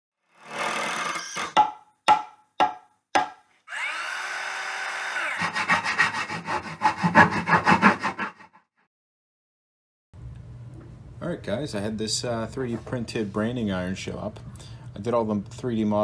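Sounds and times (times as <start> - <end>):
saw cutting wood: 0.2 - 1.8, 3.2 - 8.5
sharp knocks: 1.5 - 3.4.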